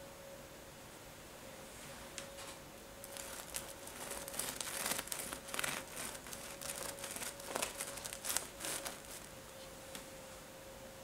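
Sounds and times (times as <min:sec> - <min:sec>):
bread knife sawing crunchy crust: 0:03.1 - 0:09.3.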